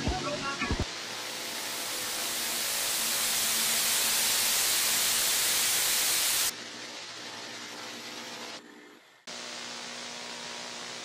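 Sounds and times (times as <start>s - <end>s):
television static hiss: 0.0s - 11.0s.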